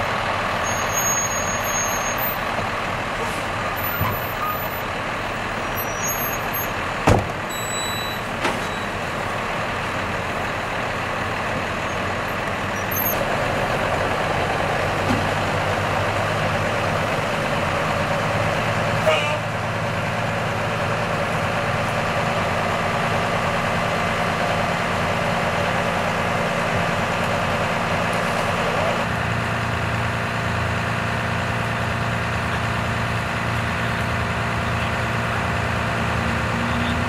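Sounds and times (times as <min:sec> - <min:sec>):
truck engines idling: 0:00.0 - 0:37.0.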